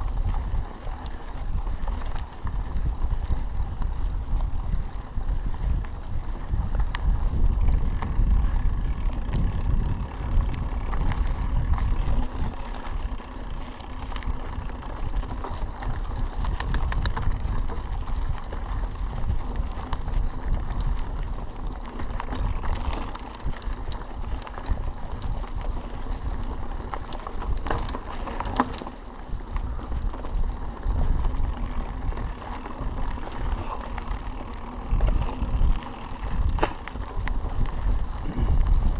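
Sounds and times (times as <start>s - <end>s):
bike rattling: 0.0s - 38.9s
bike tyres rolling on gravel: 0.0s - 38.9s
wind rumble on microphone: 0.0s - 38.9s
sharp clicks: 16.4s - 17.4s.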